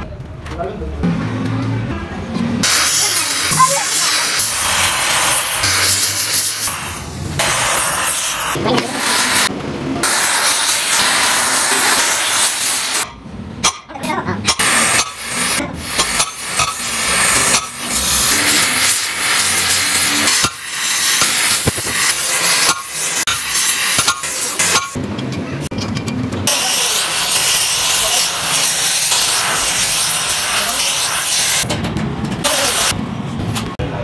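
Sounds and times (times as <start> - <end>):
gas torch hissing: 2.6 - 13.1, 14.5 - 25.0, 26.5 - 31.7, 32.4 - 33.0.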